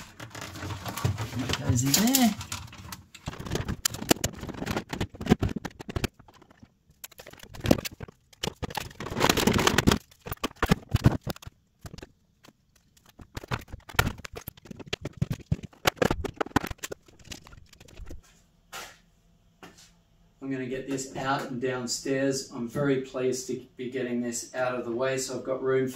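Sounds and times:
plastic parts knocking and clicking: 0.0 - 18.2
plastic scraping: 0.0 - 18.2.

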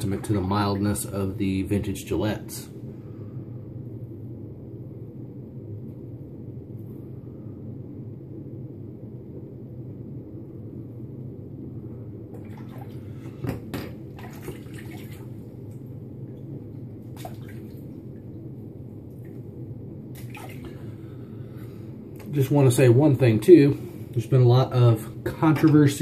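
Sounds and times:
splashes and sharp knocks: 12.4 - 15.4, 17.1 - 17.8, 20.1 - 20.8.

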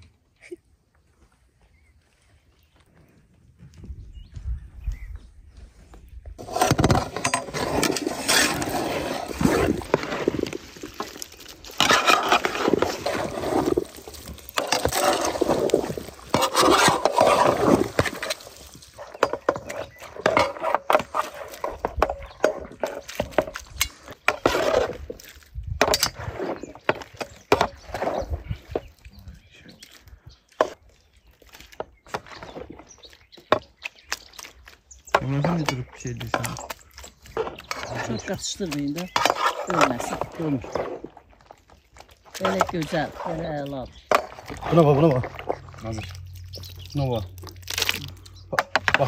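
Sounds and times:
utensils scraping and clinking dishes: 6.4 - 10.5, 11.7 - 13.8, 14.5 - 25.0.

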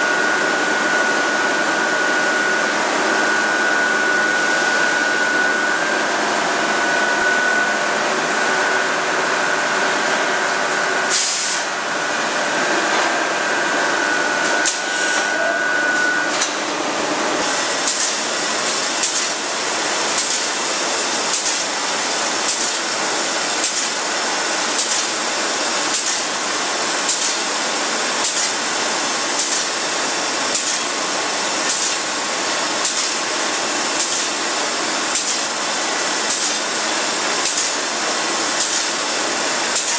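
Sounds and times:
high whine: 0.0 - 17.6.

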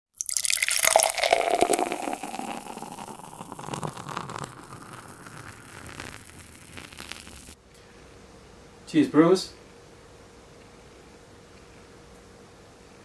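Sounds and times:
beer fizzing in a glass: 0.2 - 7.6.

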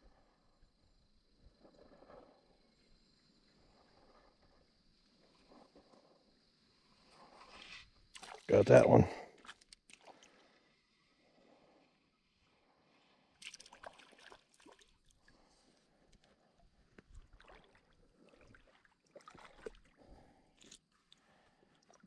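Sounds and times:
water sloshing and splashing: 8.1 - 8.6, 9.3 - 10.6, 13.4 - 15.5, 17.1 - 22.0.

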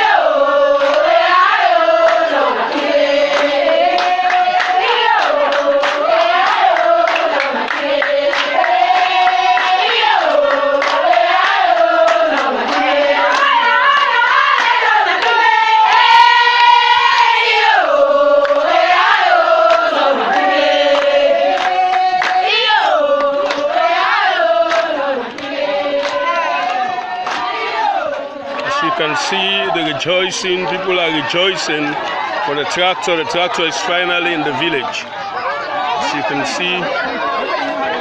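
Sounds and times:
crowd singing: 0.0 - 38.0
hand clapping: 3.2 - 15.4, 18.4 - 18.7, 20.9 - 22.5, 23.2 - 23.7, 24.7 - 27.5.

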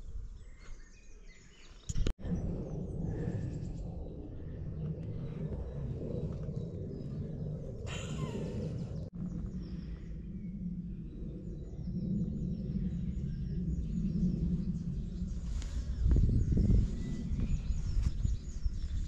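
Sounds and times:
low rumble: 1.9 - 19.0
birds chirping: 4.0 - 19.0.

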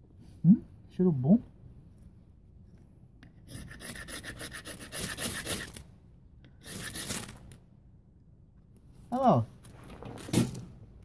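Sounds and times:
knife scraping ferrocerium rod: 3.5 - 5.8, 6.6 - 7.3.

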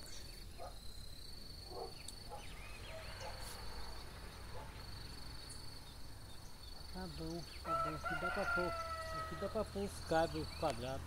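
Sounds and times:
bird chirps: 0.0 - 11.0
insect trilling: 4.8 - 10.9.

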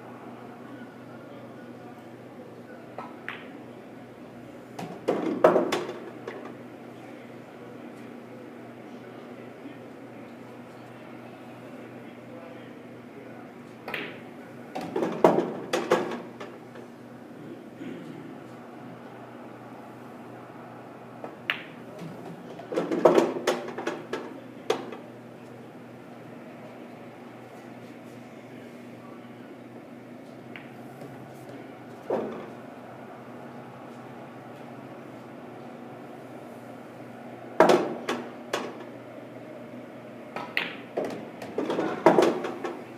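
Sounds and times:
pool balls knocking: 4.8 - 6.6, 13.9 - 16.9, 21.2 - 25.0, 37.6 - 38.9, 40.3 - 42.8
balls rattling through ball return: 13.9 - 16.6, 21.6 - 25.0, 37.6 - 38.9, 40.4 - 42.8
cue striking ball click: 40.3 - 42.8.

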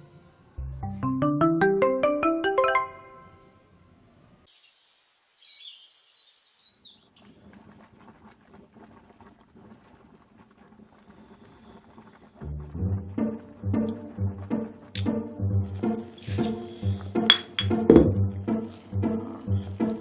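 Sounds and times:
rising chiming notes: 0.8 - 3.4.

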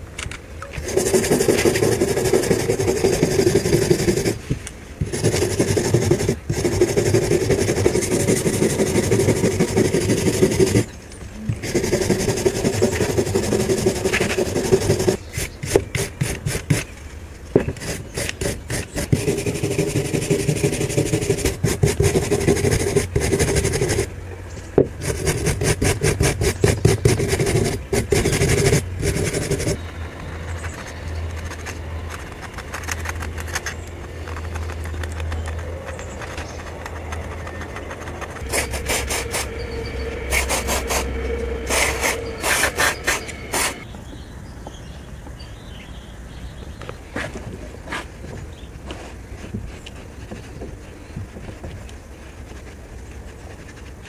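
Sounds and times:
low hum: 0.0 - 43.9
wire brush scrubbing metal: 36.9 - 43.8.

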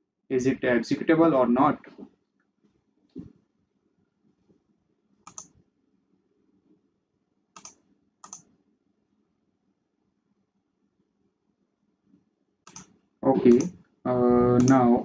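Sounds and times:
computer mouse clicks: 5.3 - 5.6, 7.6 - 8.5, 12.6 - 13.8, 14.6 - 14.8
faint low hum: 13.2 - 15.0.

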